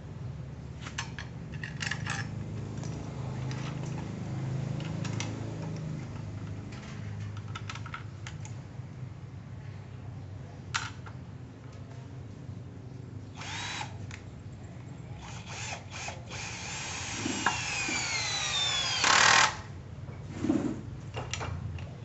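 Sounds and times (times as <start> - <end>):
metal parts clicking: 1.0 - 4.1.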